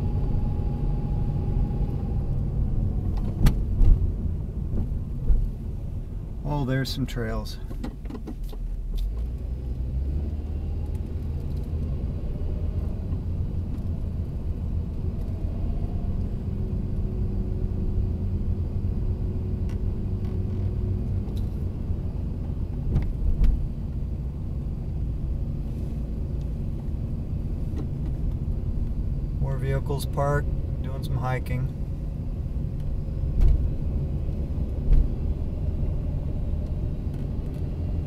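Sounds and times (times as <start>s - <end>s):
car engine and tyres rumbling: 0.0s - 38.0s.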